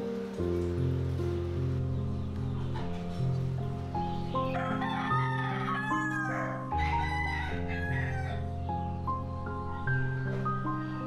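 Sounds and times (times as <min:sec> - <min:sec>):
gentle instrumental music: 0:00.0 - 0:11.0
rooster crowing: 0:04.5 - 0:08.5.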